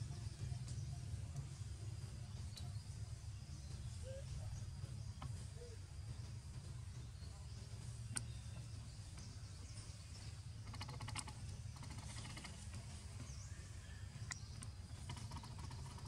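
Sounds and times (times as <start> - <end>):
faint low rumble: 0.0 - 16.0
rattle of clicks: 10.6 - 12.9, 14.2 - 16.0.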